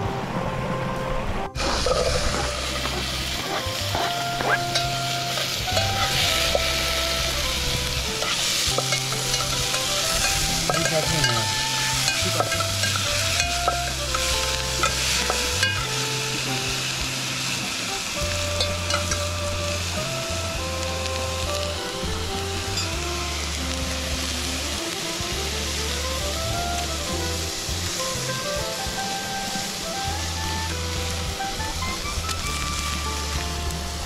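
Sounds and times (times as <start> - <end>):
background music with held notes: 0.0 - 34.0
steady hiss: 1.1 - 34.0.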